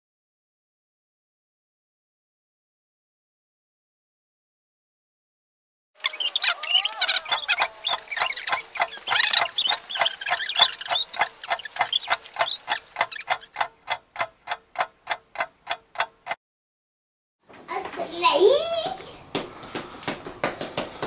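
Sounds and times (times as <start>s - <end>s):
clock ticking: 6.1s - 16.4s.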